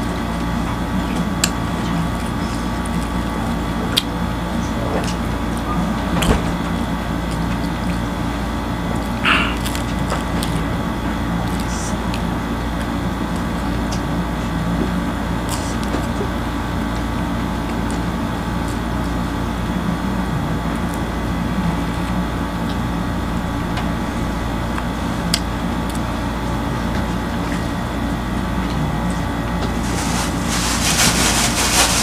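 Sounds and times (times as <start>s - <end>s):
steady machine hum: 0.0s - 32.0s
flatbread tearing and chewing: 9.0s - 10.7s.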